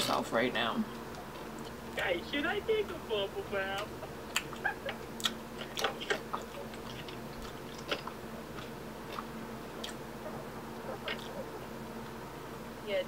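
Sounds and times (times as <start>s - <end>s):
open-mouthed chewing: 3.7s - 11.6s.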